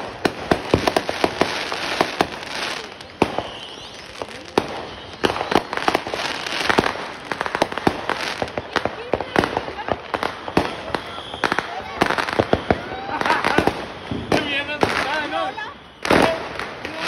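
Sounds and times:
fireworks popping and crackling: 0:00.0 - 0:17.0
loud firework bang: 0:09.0 - 0:15.3.

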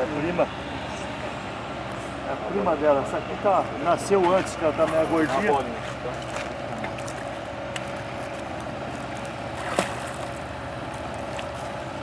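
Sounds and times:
fish splashing at water surface: 0:04.9 - 0:12.0.

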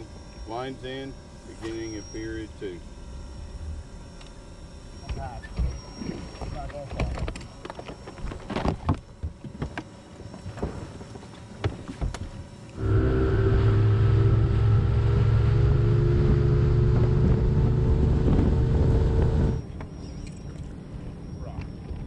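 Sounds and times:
outboard motor running: 0:00.0 - 0:22.0
knocks and clicks on boat deck: 0:06.9 - 0:09.9.

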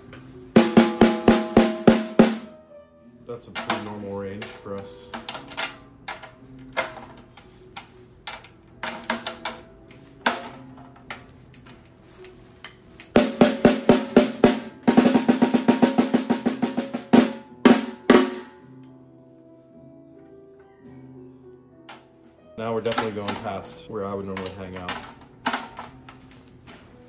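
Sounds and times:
snare drum roll: 0:00.6 - 0:02.5, 0:13.2 - 0:18.6
snare drum taps: 0:13.1 - 0:16.4.

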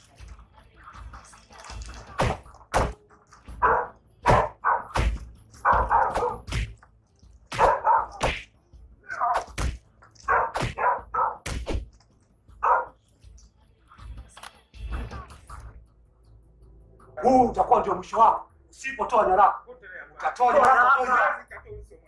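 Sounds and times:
punches smacking: 0:02.2 - 0:03.0, 0:04.3 - 0:06.8, 0:07.5 - 0:08.5, 0:09.2 - 0:12.0.

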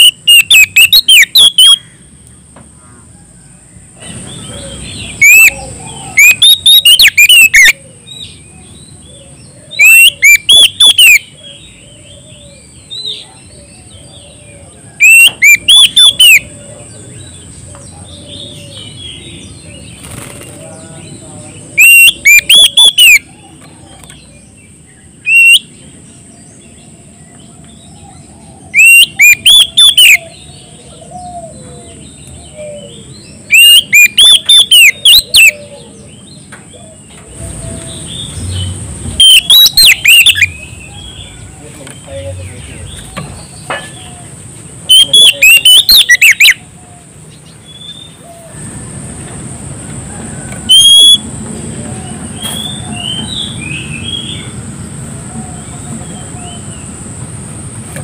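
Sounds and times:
magpie-robin singing: 0:00.0 - 0:02.0, 0:04.1 - 0:11.9, 0:15.0 - 0:16.6, 0:21.0 - 0:24.5, 0:25.1 - 0:25.9, 0:28.7 - 0:31.0, 0:32.2 - 0:35.6, 0:38.0 - 0:41.4, 0:44.9 - 0:46.6, 0:50.7 - 0:51.2.

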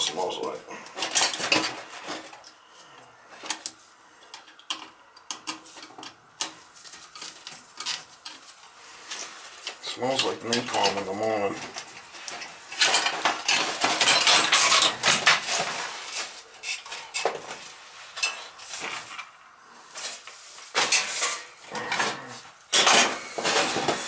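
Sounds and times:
metal clinking and clattering: 0:11.6 - 0:17.6.

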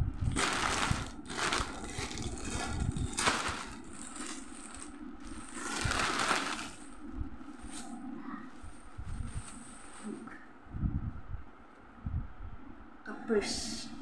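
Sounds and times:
plastic bag crinkling: 0:00.2 - 0:07.0.

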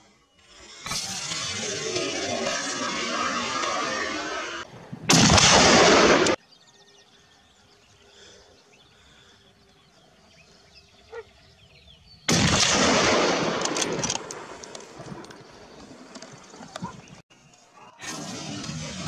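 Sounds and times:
loud gunfire: 0:05.1 - 0:06.4, 0:12.3 - 0:14.6.

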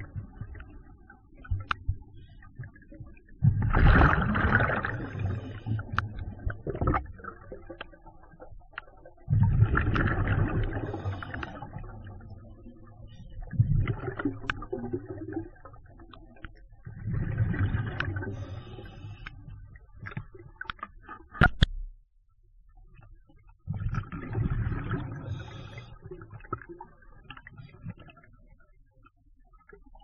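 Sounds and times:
diver exhaling bubbles underwater: 0:03.4 - 0:07.7, 0:09.3 - 0:12.2, 0:23.7 - 0:25.6
faint clicks: 0:08.7 - 0:09.0.

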